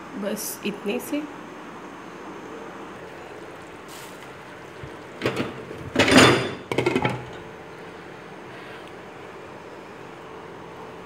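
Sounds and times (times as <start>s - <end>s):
glass lid clanking on pot: 5.2s - 7.5s
lid rattling: 5.2s - 7.5s.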